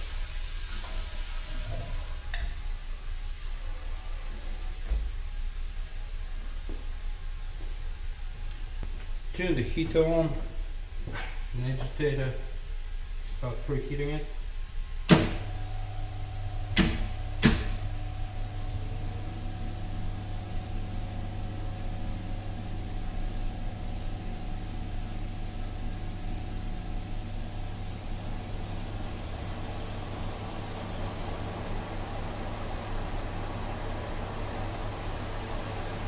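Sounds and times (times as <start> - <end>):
electric motor humming: 15.3 - 30.8.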